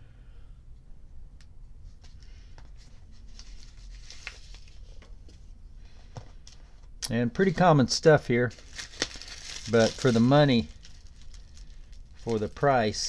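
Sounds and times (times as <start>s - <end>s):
plastic rustling: 2.7s - 5.4s, 8.4s - 13.0s.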